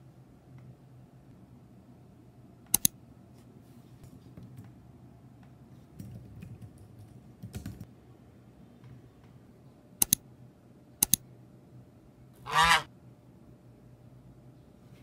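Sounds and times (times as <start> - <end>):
sharp double click: 2.7 - 2.9, 10.0 - 10.2, 11.0 - 11.2.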